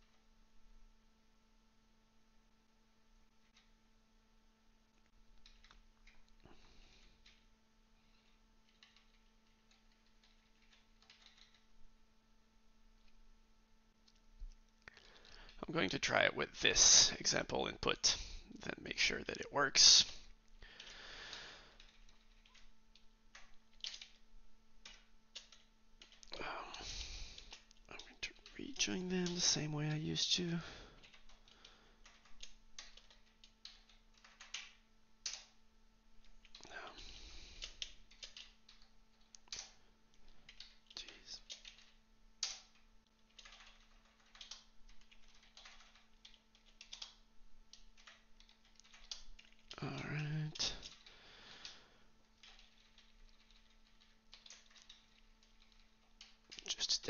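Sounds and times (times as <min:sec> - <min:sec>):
faint steady hum: 0:00.0 - 0:57.0
computer keyboard keystrokes: 0:05.4 - 0:06.4, 0:08.1 - 0:11.7, 0:21.8 - 0:24.2, 0:24.8 - 0:26.4, 0:31.0 - 0:35.6, 0:37.5 - 0:49.8, 0:50.5 - 0:56.8.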